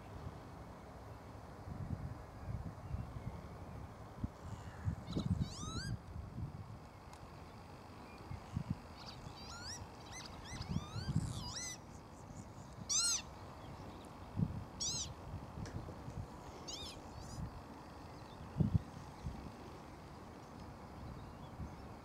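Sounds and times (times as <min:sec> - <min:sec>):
lapwings calling: 0:04.6 - 0:06.0, 0:09.0 - 0:13.9, 0:14.8 - 0:15.2, 0:16.5 - 0:17.4.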